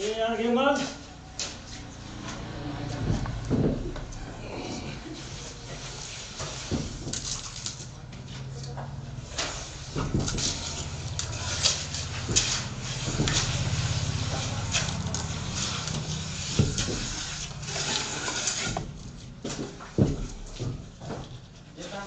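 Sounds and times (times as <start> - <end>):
tools scraping wet mortar: 9.1 - 19.1.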